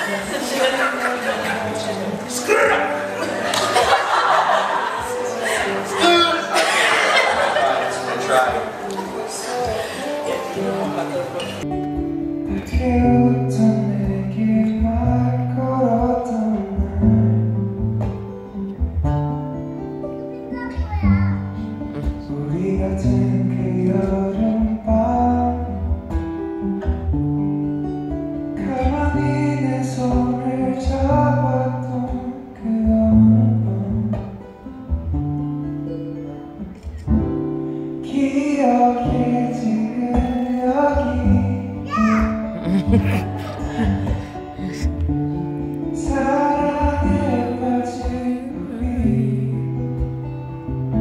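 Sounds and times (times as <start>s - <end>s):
acoustic guitar: 0.0s - 51.0s
man singing into a microphone: 8.6s - 11.6s, 12.5s - 17.7s, 22.0s - 25.9s, 28.6s - 34.5s, 38.0s - 45.0s, 45.8s - 50.2s.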